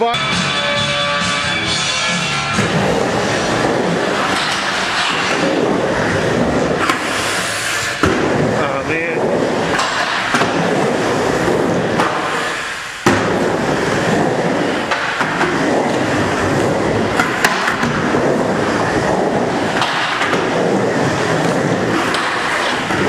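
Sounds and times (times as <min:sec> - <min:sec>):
skateboard wheels rumbling on ramp: 0:00.1 - 0:23.0
skateboard clacks: 0:02.5 - 0:08.6, 0:09.2 - 0:23.0
skateboard smack: 0:08.0 - 0:08.4, 0:11.4 - 0:13.6, 0:17.2 - 0:18.2.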